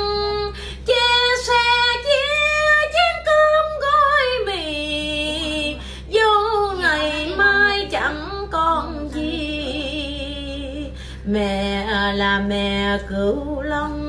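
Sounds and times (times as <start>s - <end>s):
woman singing a ballad: 0.0s - 14.0s
singer breath: 0.5s - 0.9s, 5.8s - 6.1s, 10.9s - 11.3s.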